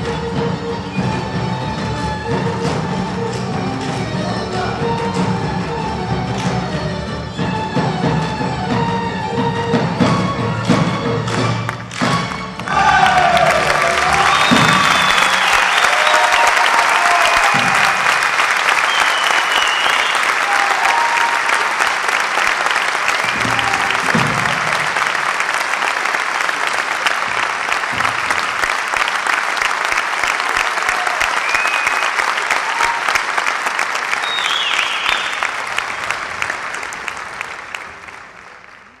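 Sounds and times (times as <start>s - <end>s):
audience applauding: 10.5s - 39.0s
short whistles: 18.8s - 20.3s, 34.2s - 35.5s.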